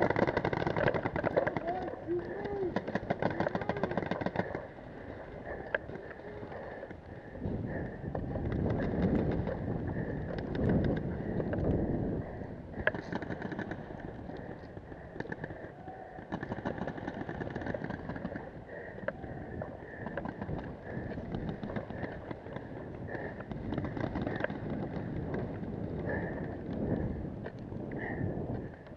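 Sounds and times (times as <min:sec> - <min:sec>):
paintball markers firing: 0:00.0 - 0:07.0, 0:12.8 - 0:15.6, 0:16.2 - 0:19.2.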